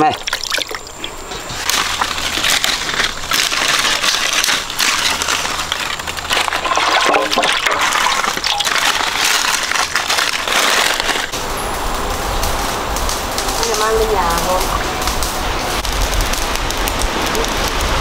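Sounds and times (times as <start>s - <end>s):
water splashing and sloshing: 0.0s - 11.4s.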